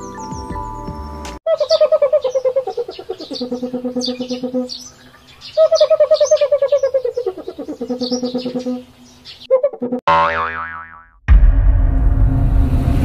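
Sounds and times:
cartoon bird trilling call: 0:01.5 - 0:04.8, 0:05.6 - 0:11.1.

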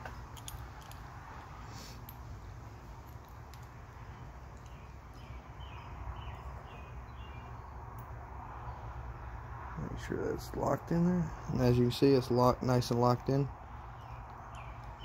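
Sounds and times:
bird chirping: 0:04.1 - 0:07.8, 0:13.8 - 0:15.0.

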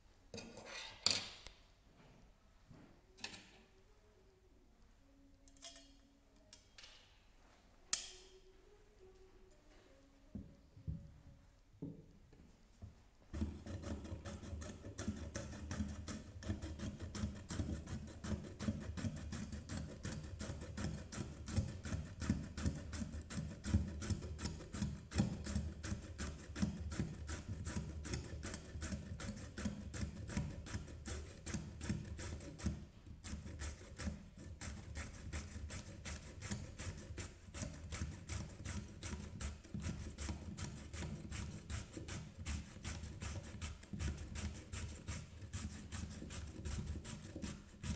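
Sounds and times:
carrot rasping on grater: 0:13.4 - 0:47.9.

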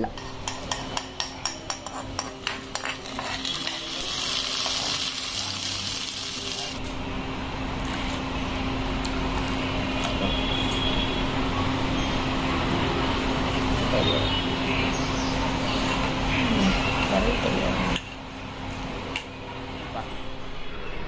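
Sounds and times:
hot oil sizzling: 0:01.8 - 0:06.8.

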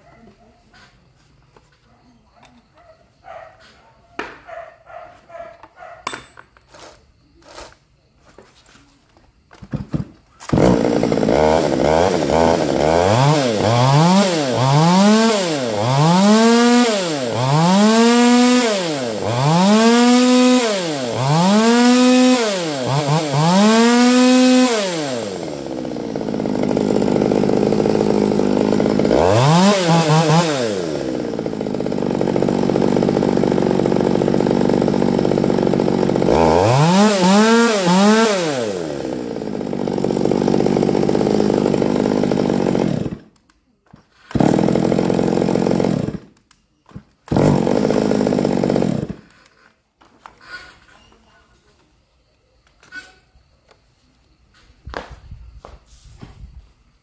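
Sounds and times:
chainsaw idling: 0:06.7 - 0:07.7, 0:10.4 - 0:43.3, 0:44.1 - 0:46.4, 0:47.3 - 0:49.7
chainsaw engine revving: 0:06.7 - 0:07.8, 0:10.4 - 0:43.4, 0:44.1 - 0:46.4, 0:47.2 - 0:49.8
clicks of handling chainsaw: 0:43.4 - 0:44.5, 0:49.1 - 0:51.2.

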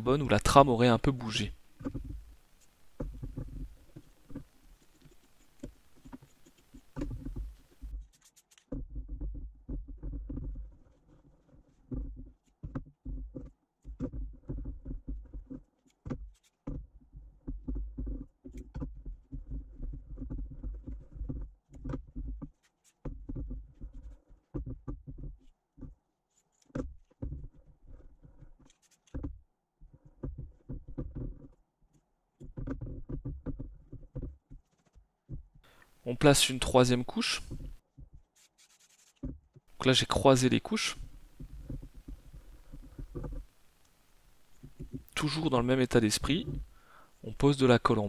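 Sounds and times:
sharp clicks and knocks: 0:00.0 - 0:46.7
cloth rubbing and handling: 0:35.9 - 0:47.4.

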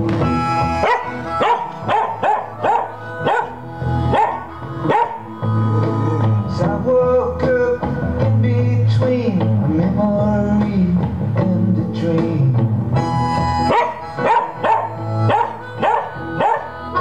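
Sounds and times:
rock song: 0:00.0 - 0:17.0
dog yipping and howling: 0:00.8 - 0:05.4, 0:13.7 - 0:17.0.

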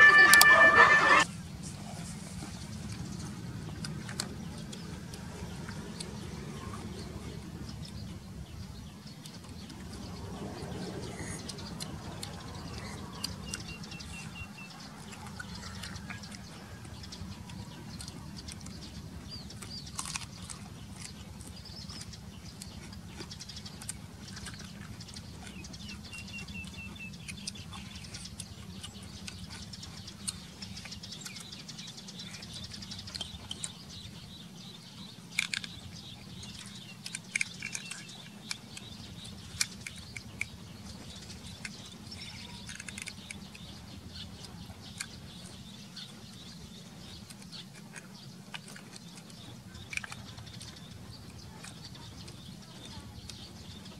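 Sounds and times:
small birds chirping: 0:00.0 - 0:53.9
steady low rumble: 0:00.0 - 0:53.9
clicks of shells and toothpicks: 0:35.3 - 0:43.7, 0:47.0 - 0:52.5.

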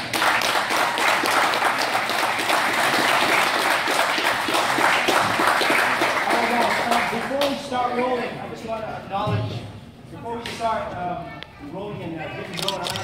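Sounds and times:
people applauding: 0:00.0 - 0:07.6.

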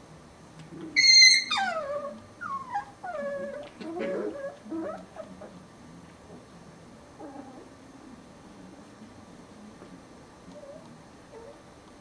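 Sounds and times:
puppy whining: 0:00.9 - 0:05.6, 0:07.2 - 0:08.1, 0:10.5 - 0:11.6.

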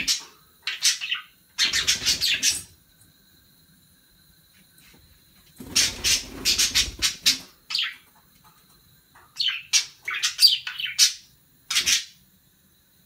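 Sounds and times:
budgerigar chirping: 0:09.4 - 0:12.2.

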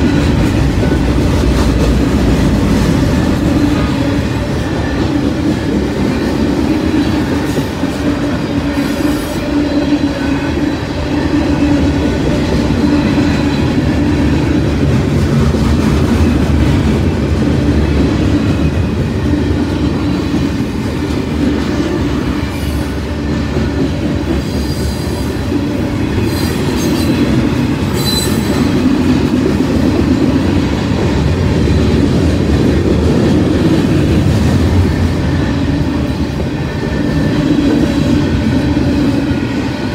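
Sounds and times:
freight train rumbling past: 0:00.0 - 0:39.9
high-pitched wheel squeals: 0:27.9 - 0:28.7.

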